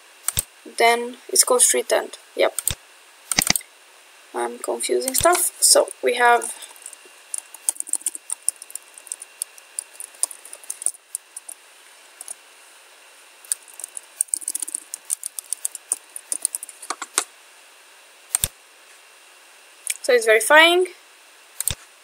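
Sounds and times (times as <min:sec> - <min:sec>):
computer keyboard typing: 0:02.6 - 0:03.6, 0:06.8 - 0:11.6, 0:13.5 - 0:17.1.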